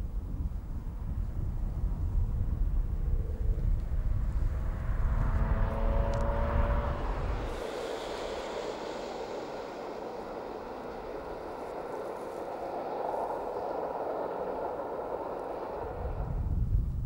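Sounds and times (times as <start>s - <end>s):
distant train rolling: 0.0s - 17.0s.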